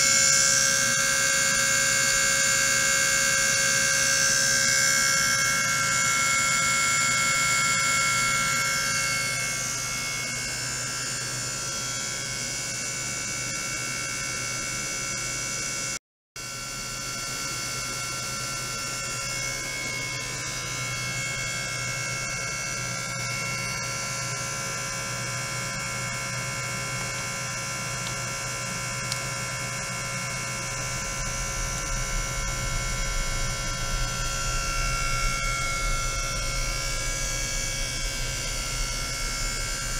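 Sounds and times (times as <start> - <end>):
high whining tones: 0.0 - 13.7, 16.4 - 39.9
steady electric buzz: 0.0 - 39.9
low rumble with crackles: 30.0 - 39.9.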